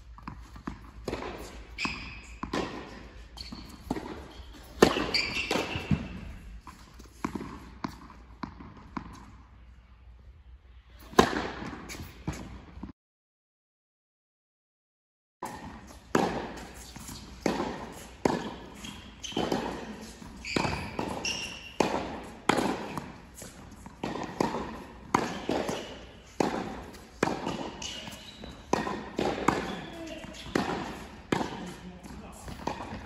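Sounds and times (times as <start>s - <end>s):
tennis ball bouncing: 0.1s - 9.4s, 11.1s - 12.9s, 15.4s - 33.0s
racket striking ball: 0.2s - 6.4s, 11.1s - 12.6s, 15.4s - 33.0s
shoe squeaks: 1.4s - 2.5s, 3.2s - 6.4s, 16.6s - 21.8s, 25.3s - 26.4s, 27.4s - 28.8s, 29.5s - 31.0s.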